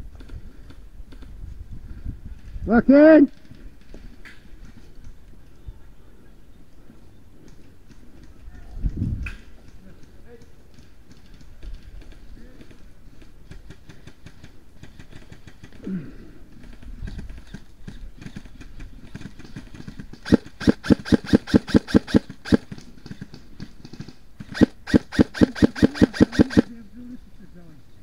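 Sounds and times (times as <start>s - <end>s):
airsoft rifle rapid shots: 19.1s - 22.8s, 24.4s - 26.7s.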